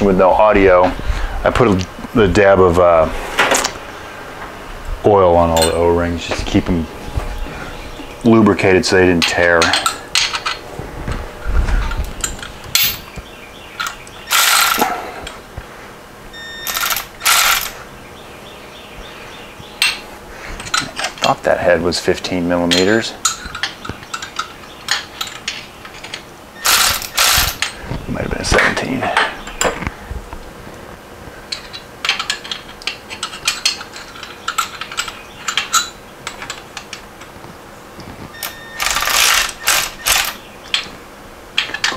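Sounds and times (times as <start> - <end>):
socket ratchet clicking: 13.8 - 14.8, 16.7 - 17.7, 26.6 - 27.7.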